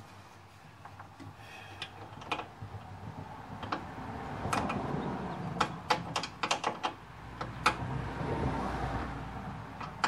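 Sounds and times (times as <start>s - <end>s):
sharp clicks and knocks: 0.8s - 2.6s, 3.5s - 8.0s, 9.7s - 10.0s.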